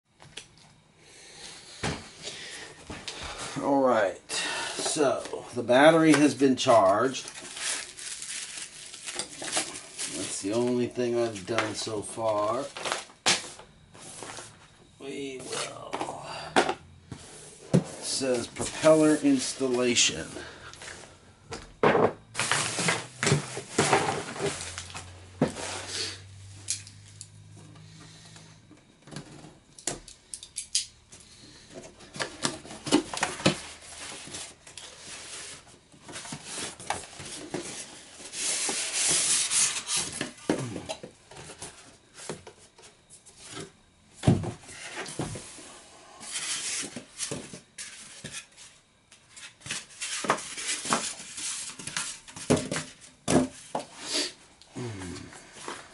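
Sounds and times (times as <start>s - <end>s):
cardboard and foam rustling: 4.9s - 16.0s, 17.1s - 21.1s, 22.3s - 25.9s, 31.7s - 40.7s, 41.3s - 53.8s.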